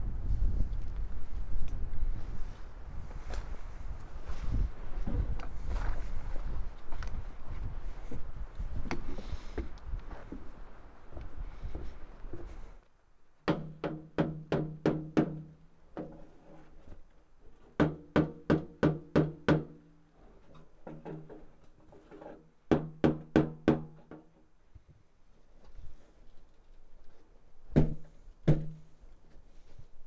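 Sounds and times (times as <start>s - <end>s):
knocking on sheet metal pipe: 13.5s - 16.1s, 17.8s - 19.8s, 22.7s - 24.3s, 27.8s - 28.8s.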